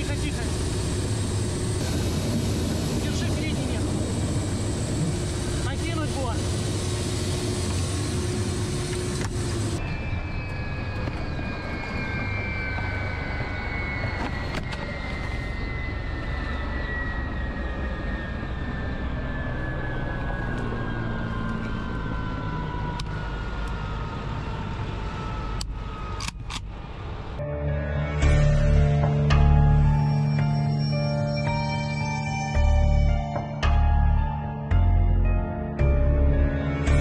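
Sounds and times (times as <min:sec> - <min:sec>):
helicopter engines winding down: 0:00.0 - 0:27.4, 0:28.1 - 0:35.0.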